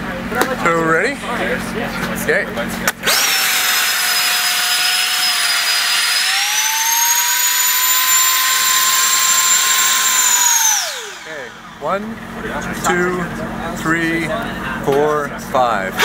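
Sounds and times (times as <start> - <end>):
electric blower whine: 2.9 - 12.0.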